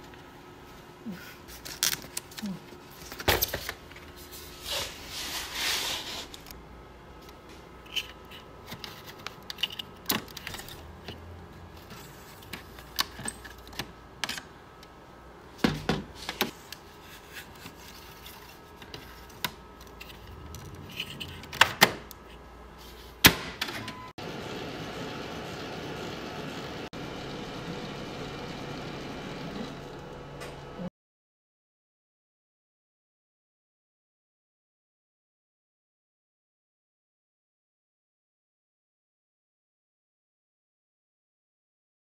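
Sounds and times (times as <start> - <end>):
copier machine hum: 23.6 - 30.9.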